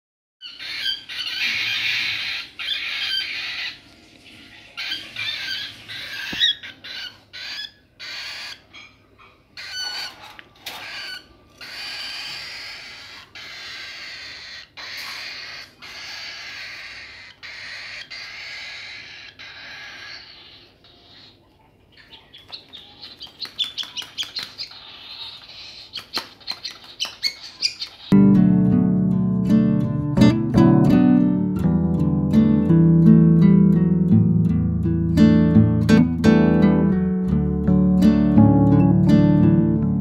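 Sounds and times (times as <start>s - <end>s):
chicks raspy begging calls: 0.4s - 3.8s, 4.7s - 28.2s.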